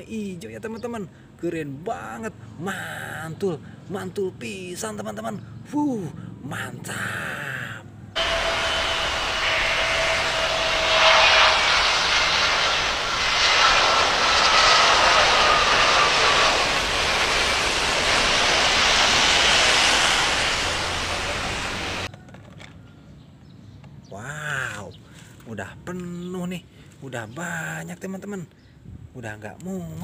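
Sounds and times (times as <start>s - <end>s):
jet engines rushing and whining: 8.2s - 22.1s.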